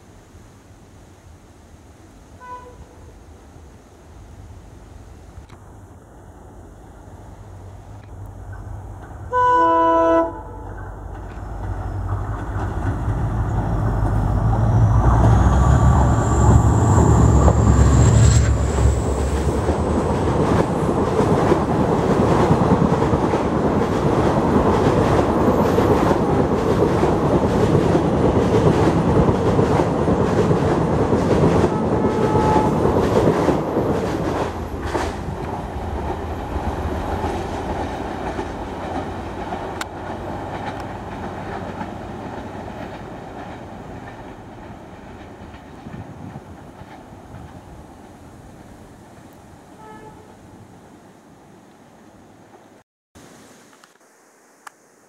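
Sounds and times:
clickety-clack of train wheels: 0:08.0 - 0:09.4, 0:10.6 - 0:48.2
locomotive engine rumble: 0:10.3 - 0:25.5
high whine: 0:13.4 - 0:20.3.

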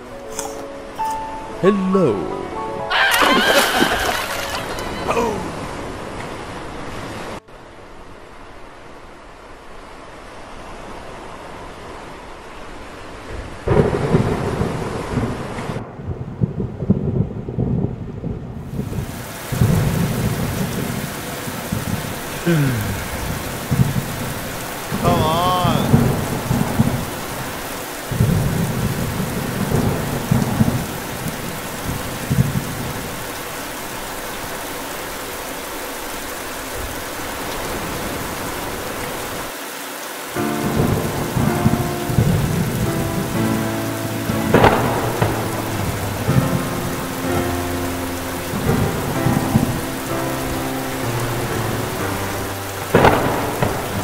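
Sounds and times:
heavy rain hissing: 0:00.0 - 0:15.8, 0:18.6 - 0:54.0
rolling thunder: 0:13.6 - 0:22.4, 0:23.0 - 0:33.3, 0:40.6 - 0:47.7, 0:48.5 - 0:49.9, 0:52.9 - 0:54.0.

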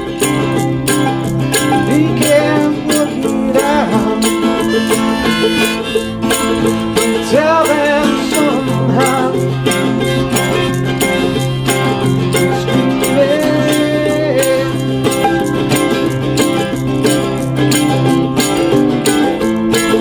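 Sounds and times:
acoustic guitar strumming: 0:00.0 - 0:20.0
mandolin-like instrument strummed: 0:00.0 - 0:20.0
man singing: 0:01.8 - 0:05.8, 0:07.0 - 0:10.2, 0:12.4 - 0:14.9.

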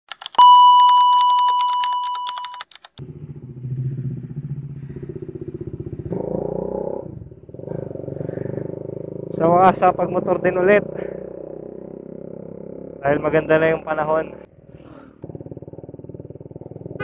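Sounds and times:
fast ticking: 0:00.1 - 0:03.0
loud steady electronic beep: 0:00.4 - 0:02.7
motorcycle engine running: 0:03.0 - 0:17.0.

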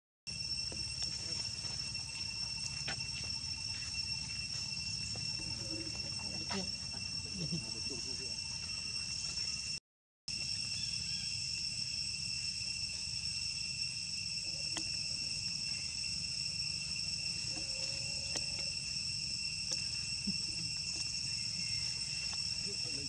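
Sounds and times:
insect chorus trilling: 0:00.3 - 0:23.0.

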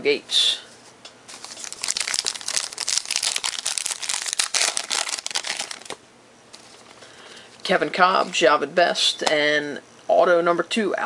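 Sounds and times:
plastic packaging crinkling: 0:01.3 - 0:07.0.

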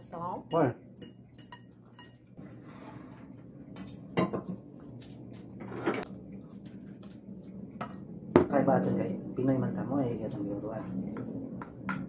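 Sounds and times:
forks clinking on ceramic bowl: 0:00.4 - 0:02.4.

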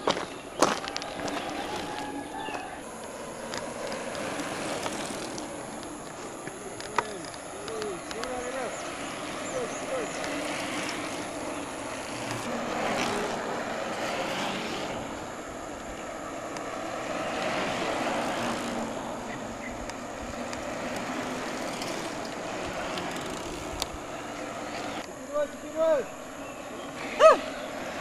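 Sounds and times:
bike tyres rolling on tarmac: 0:00.0 - 0:28.0
faint clicks: 0:02.5 - 0:08.4, 0:15.8 - 0:16.7.

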